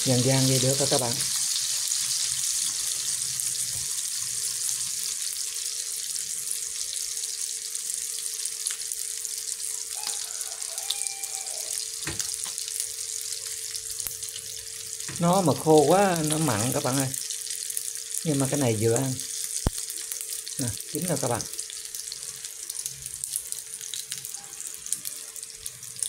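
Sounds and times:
fish sizzling in hot oil: 0.0s - 26.0s.

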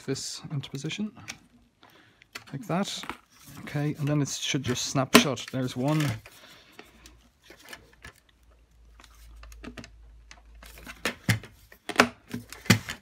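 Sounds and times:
plastic parts clicking and knocking: 4.0s - 13.0s.

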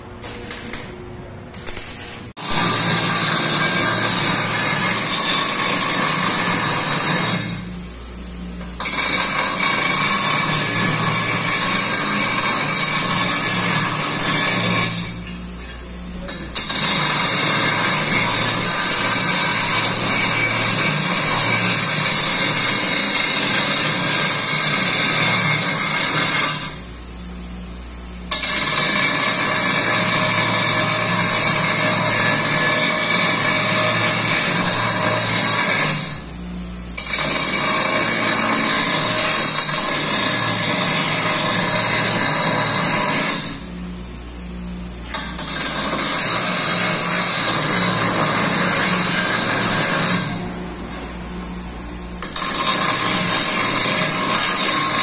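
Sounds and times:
bench grinder grinding metal pipe: 0.0s - 7.9s, 8.6s - 26.9s, 28.3s - 36.3s, 37.0s - 43.7s, 45.0s - 51.3s, 52.1s - 55.0s
grinder motor humming: 44.8s - 55.0s.

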